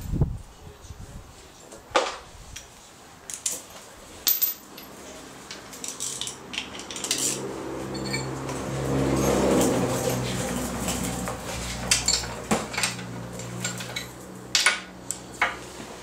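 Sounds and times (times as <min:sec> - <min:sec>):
metal hand tools clinking: 0:03.3 - 0:14.8.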